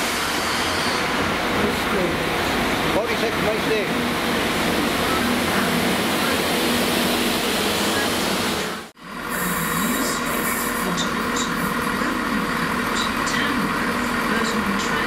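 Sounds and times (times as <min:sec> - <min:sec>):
diesel train engine hum: 0:00.0 - 0:15.0.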